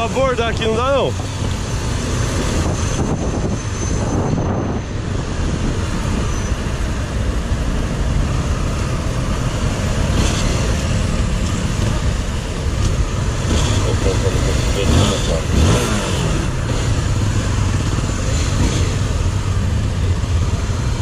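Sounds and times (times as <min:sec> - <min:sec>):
surrounding traffic: 0:00.0 - 0:21.0
wind on camera: 0:02.3 - 0:06.3
motorcycle engine at speed: 0:09.0 - 0:21.0.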